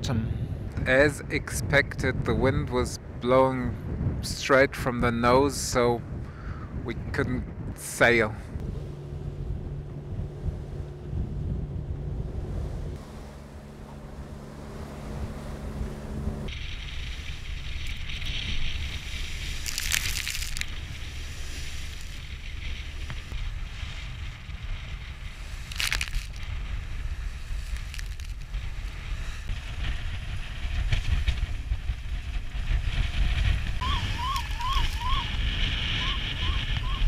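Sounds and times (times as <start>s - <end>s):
wind buffeting microphone: 0.0s - 37.0s
choppy water along hull: 8.5s - 37.0s
radio alarm warbling tone: 33.8s - 35.3s.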